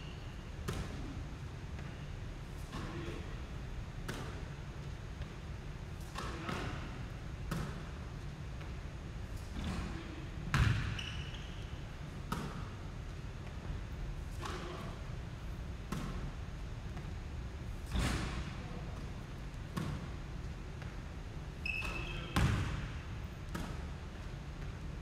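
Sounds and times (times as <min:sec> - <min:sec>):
basketball bouncing on wooden floor: 0:10.5 - 0:11.1, 0:22.0 - 0:22.9.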